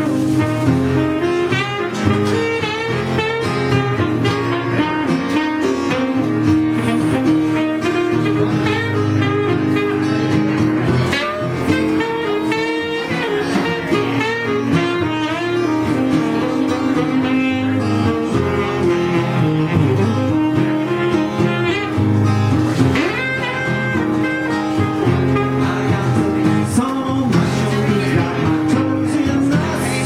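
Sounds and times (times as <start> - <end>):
acoustic guitar: 0.0 - 30.0
saxophone melody: 0.0 - 30.0.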